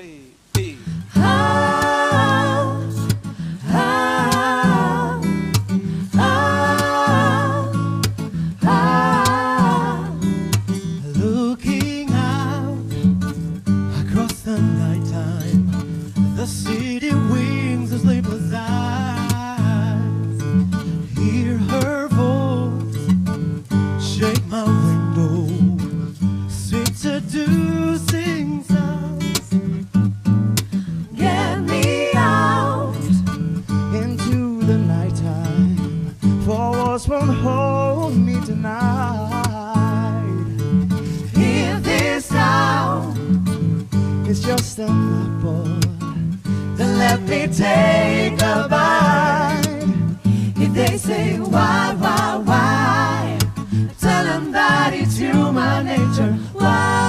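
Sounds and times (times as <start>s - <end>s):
vocal harmony singing: 0.0s - 23.2s, 23.9s - 30.0s, 30.6s - 57.0s
plucked acoustic guitar: 0.5s - 57.0s.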